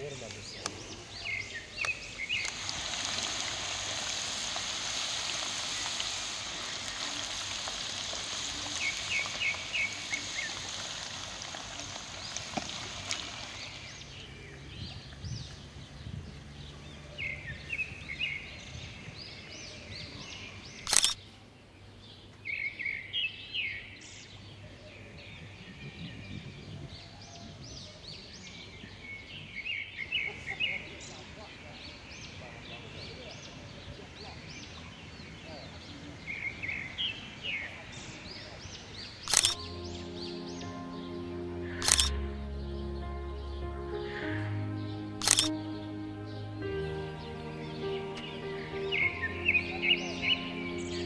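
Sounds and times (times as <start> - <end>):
birds chirping: 0.0 - 21.2, 38.5 - 51.0
food hissing in a pan: 2.5 - 13.8.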